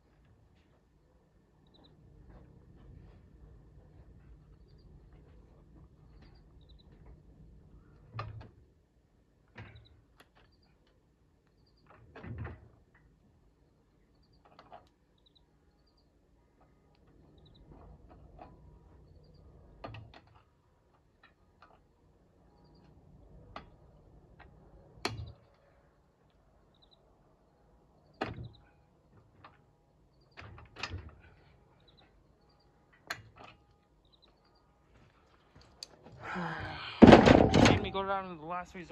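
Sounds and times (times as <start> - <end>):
birds chirping: 1.5 - 2.4, 3.7 - 8.1, 13.6 - 18.0, 18.8 - 19.8, 22.3 - 23.2, 26.6 - 30.5, 31.2 - 33.1, 33.8 - 35.8.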